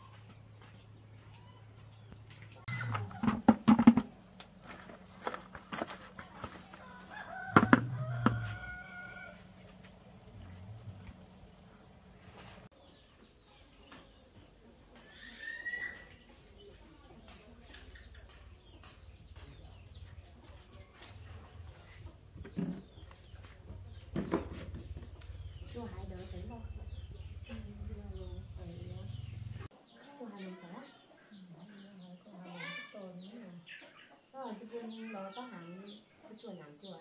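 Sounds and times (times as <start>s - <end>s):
chickens clucking: 1.2s - 12.7s
rooster crowing: 6.7s - 9.7s.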